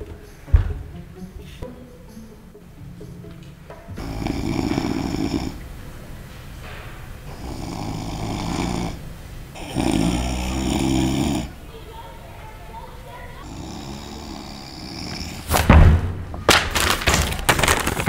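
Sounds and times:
man fake snoring: 0:04.0 - 0:05.6, 0:07.3 - 0:11.6, 0:13.4 - 0:15.5.

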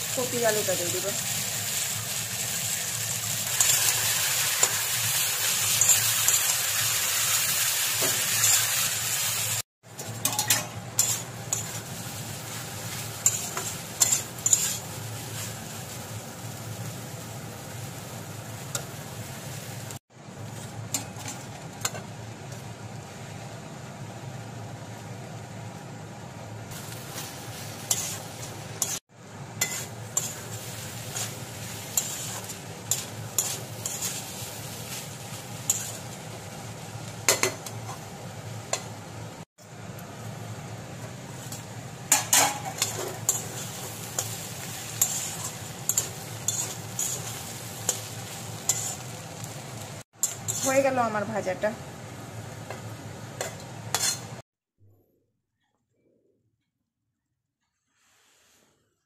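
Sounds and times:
vegetables sizzling: 0:00.0 - 0:54.4
metal spatula scraping pan: 0:10.2 - 0:11.8, 0:12.9 - 0:15.5, 0:29.6 - 0:30.5, 0:31.1 - 0:35.0, 0:42.1 - 0:48.0, 0:48.6 - 0:49.1, 0:50.2 - 0:50.8, 0:53.9 - 0:54.3.

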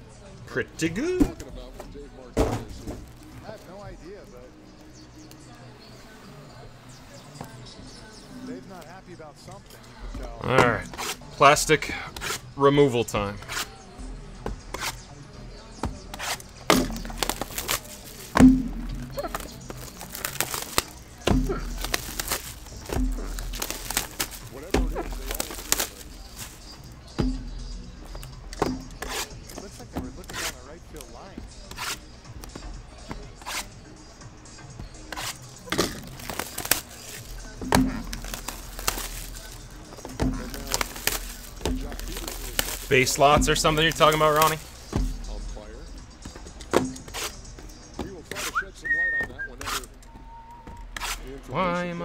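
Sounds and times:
boxes knocking: 0:01.0 - 0:03.6, 0:15.8 - 0:30.4, 0:35.1 - 0:48.4
cardboard boxes knocking on table: 0:01.2 - 0:03.2
plastic shrink-wrap rustling: 0:16.9 - 0:26.9, 0:35.6 - 0:45.4.

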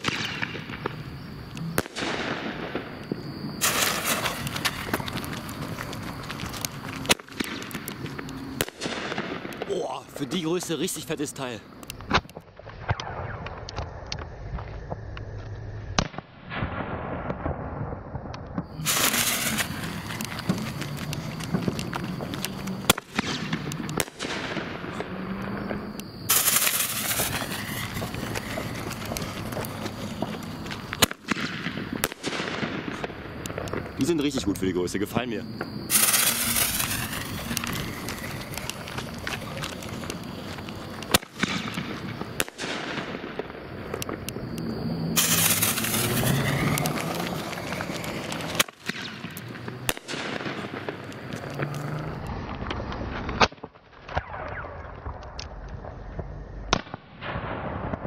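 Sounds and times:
firework bang: 0:00.0 - 0:06.2, 0:15.9 - 0:34.0, 0:35.6 - 0:40.4, 0:41.0 - 0:44.3, 0:45.1 - 0:51.0
firework crackling and hiss: 0:00.0 - 0:58.0.

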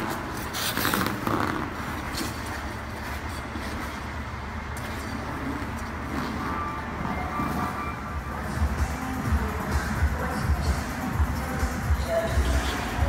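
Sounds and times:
low hum of rink: 0:00.0 - 0:13.0
skate blades scraping on ice: 0:00.1 - 0:04.1.

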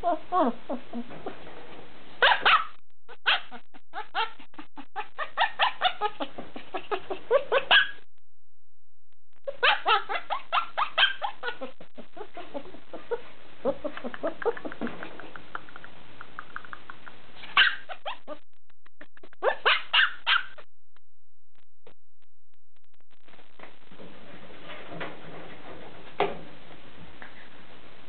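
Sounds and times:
puppy yelping: 0:02.2 - 0:08.0, 0:09.5 - 0:14.6, 0:17.4 - 0:18.4, 0:19.4 - 0:20.6.

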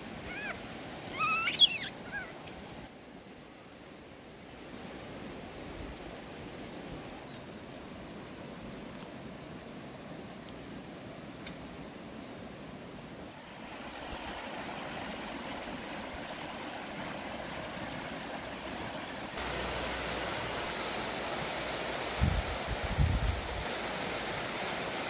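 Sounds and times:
river rushing over rocks: 0:13.3 - 0:25.0.

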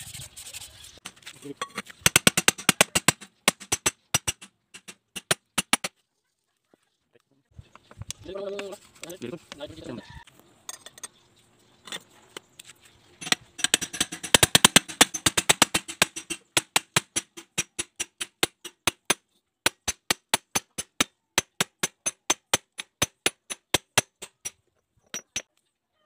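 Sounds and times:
hammer tapping metal sleeve: 0:01.6 - 0:05.9, 0:13.2 - 0:25.5.

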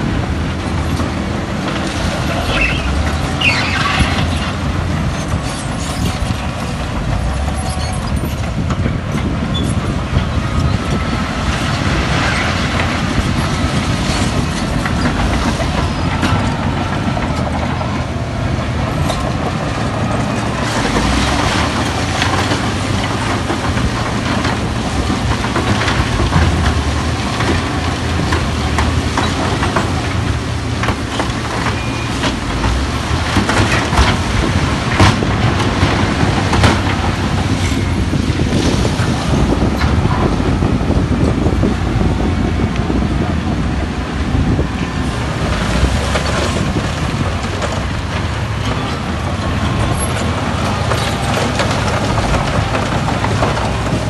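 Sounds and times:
bulldozer diesel engine running: 0:00.0 - 0:54.0
steel tracks clanking: 0:00.0 - 0:54.0.

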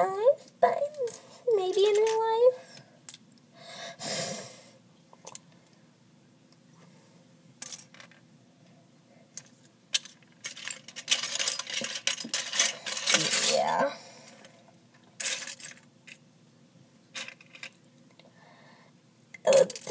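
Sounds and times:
lego pieces clattering: 0:10.0 - 0:13.8, 0:19.5 - 0:19.9.

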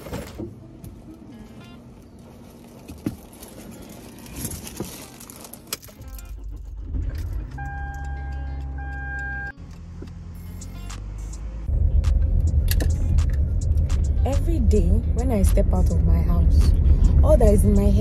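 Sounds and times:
car engine idling: 0:01.6 - 0:18.0
car keys jangling: 0:02.9 - 0:09.5.

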